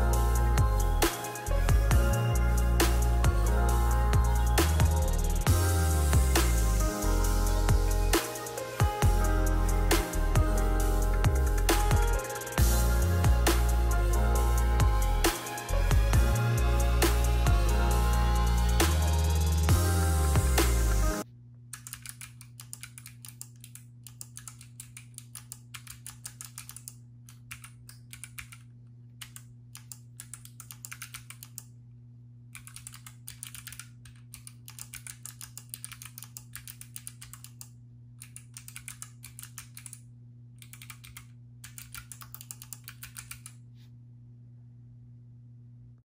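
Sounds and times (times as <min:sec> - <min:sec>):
clicky mechanical keyboard typing: 0:21.8 - 0:31.7, 0:32.6 - 0:40.0, 0:40.6 - 0:43.6.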